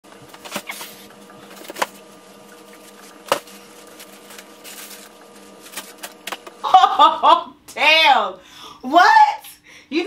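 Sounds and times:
faint steady hum: 0.1 - 10.0
packages knocking and crinkling: 0.2 - 6.6.

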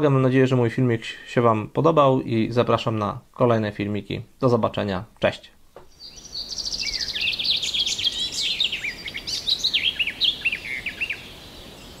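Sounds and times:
songbirds singing: 5.8 - 12.0.

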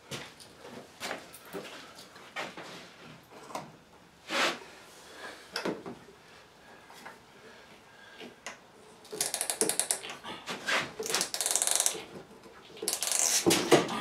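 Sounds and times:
ratchet wrench clicking: 9.1 - 10.1, 11.0 - 12.0, 12.8 - 13.4.

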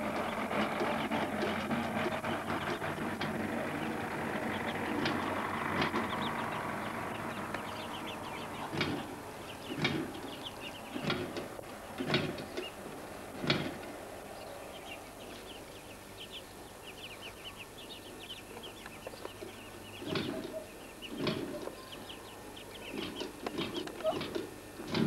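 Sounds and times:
ducklings peeping: 0.0 - 25.0
dull knocks: 8.7 - 10.3, 10.9 - 12.7, 13.4 - 13.9.

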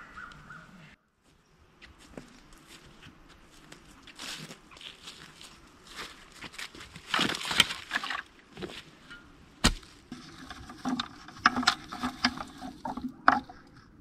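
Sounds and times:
footsteps on dry grass and leaves: 1.2 - 12.8
plastic bucket clicks and rustling: 7.0 - 8.8, 10.1 - 13.9.

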